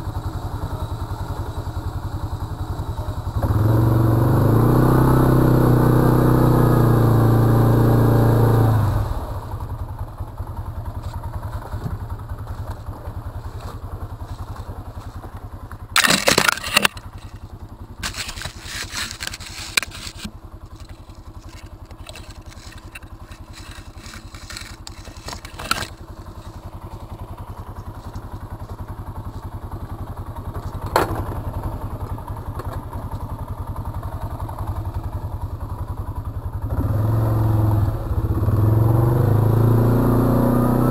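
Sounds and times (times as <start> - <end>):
atv engine revving and idling: 0.0 - 40.9
clattering and crunching: 11.0 - 29.4.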